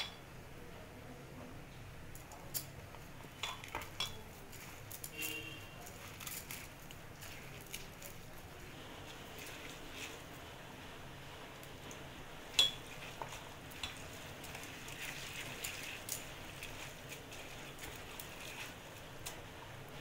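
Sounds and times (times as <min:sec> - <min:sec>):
hand mixing wet rice: 0:02.1 - 0:20.0
clink against steel bowl: 0:12.6 - 0:12.9.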